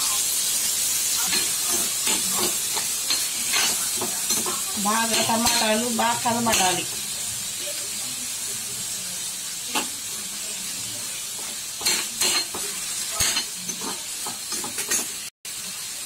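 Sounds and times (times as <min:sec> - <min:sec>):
vegetables sizzling in oil: 0:00.0 - 0:16.0
metal spoon scraping a pan: 0:01.2 - 0:07.0, 0:11.2 - 0:15.3.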